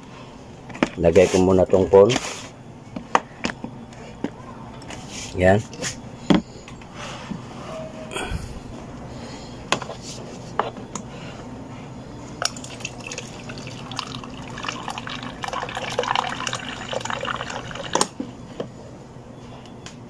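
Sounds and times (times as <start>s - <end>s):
water pouring into plastic pitcher: 12.4s - 18.1s.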